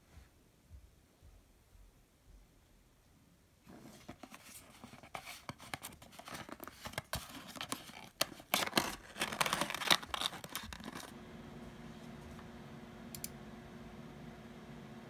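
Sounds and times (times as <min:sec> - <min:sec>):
packaging rustling and scraping: 0:03.7 - 0:11.1
cardboard box being opened: 0:03.8 - 0:11.1.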